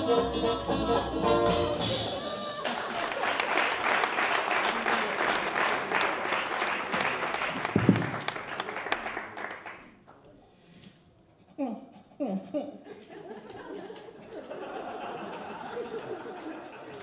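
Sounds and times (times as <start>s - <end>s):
music: 0.0s - 2.6s
audience applauding: 2.4s - 10.2s, 13.8s - 17.0s
loud thump: 7.7s - 8.4s.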